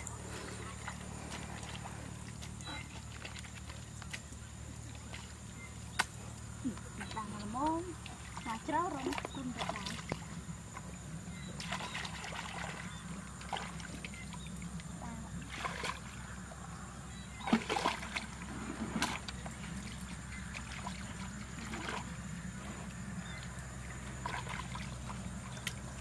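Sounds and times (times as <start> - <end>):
muddy water splashing: 0.0 - 26.0
sharp splashes or knocks: 17.4 - 19.3.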